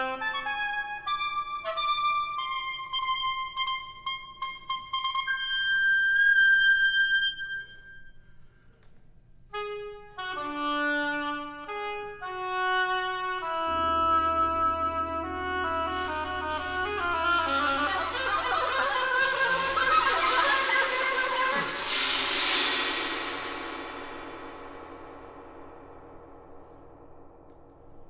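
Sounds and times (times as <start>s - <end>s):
oboe playing: 0.0s - 8.2s, 9.5s - 22.8s
low tam-tam hum: 15.7s - 28.0s.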